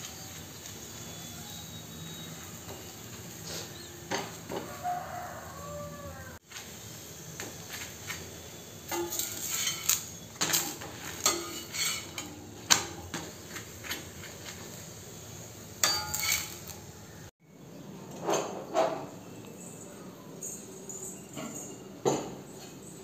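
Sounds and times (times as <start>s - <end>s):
metal spatula scraping iron griddle: 8.8s - 14.9s, 15.8s - 17.0s.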